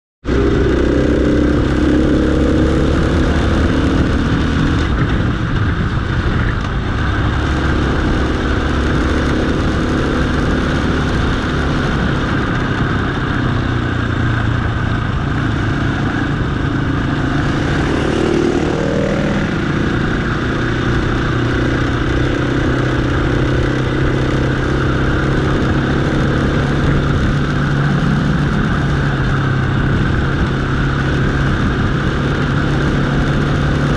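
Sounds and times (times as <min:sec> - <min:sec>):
dirt bike engine revving: 0:00.3 - 0:05.1, 0:14.7 - 0:33.9
wind on microphone: 0:00.3 - 0:33.9.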